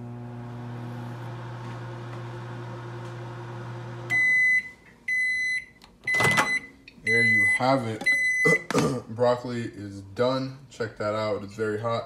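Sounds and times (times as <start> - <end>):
microwave oven humming: 0.0 - 5.3.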